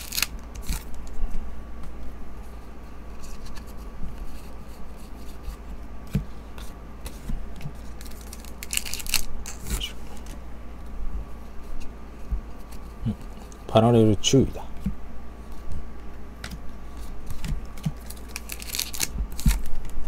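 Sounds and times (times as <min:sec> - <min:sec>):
foil wrapper crinkling: 0:00.0 - 0:01.0, 0:07.9 - 0:10.3, 0:18.0 - 0:19.9.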